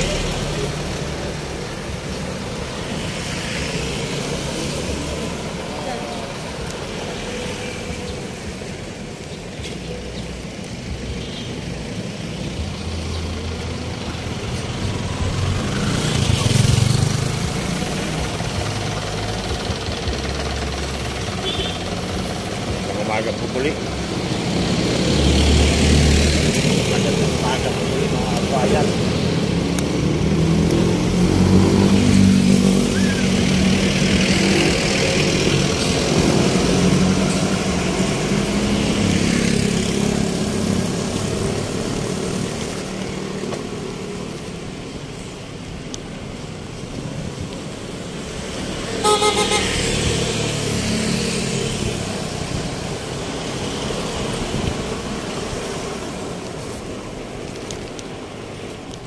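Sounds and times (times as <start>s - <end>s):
vehicle engines running: 0.0s - 59.0s
short horn toot: 49.0s - 49.8s.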